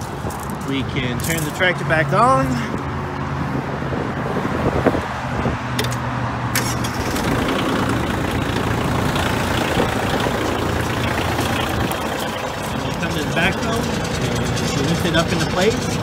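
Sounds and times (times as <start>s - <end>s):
tractor diesel engine idling: 6.5s - 16.0s.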